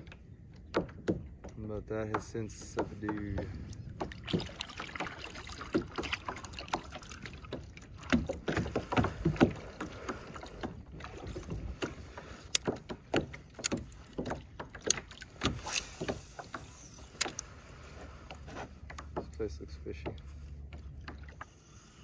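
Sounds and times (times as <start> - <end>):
small clicks and knocks: 0.0 - 4.3, 11.4 - 17.5, 18.3 - 21.5
paddle blades splashing: 0.0 - 22.0.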